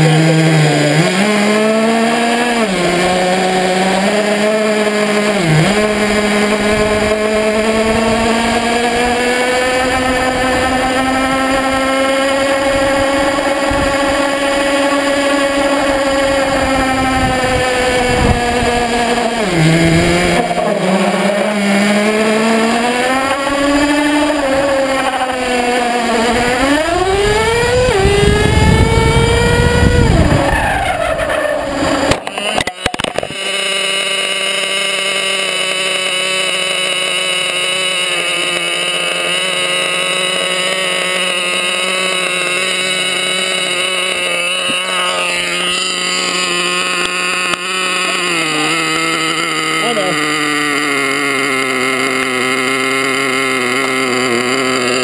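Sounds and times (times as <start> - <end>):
rc car motor revving: 0.0 - 55.0
tyre and road noise: 0.0 - 55.0
sharp knocks: 32.0 - 33.4.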